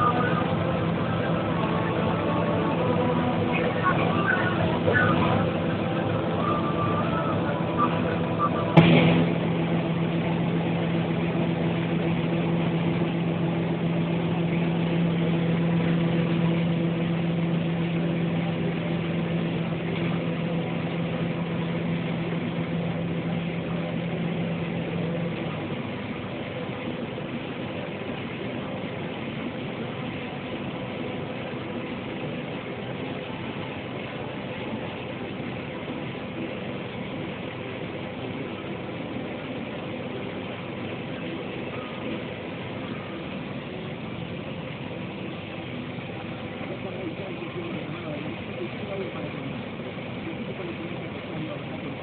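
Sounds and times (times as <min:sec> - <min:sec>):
humming tone: 0:00.0 - 0:28.0
combine harvester drone: 0:00.0 - 0:52.0.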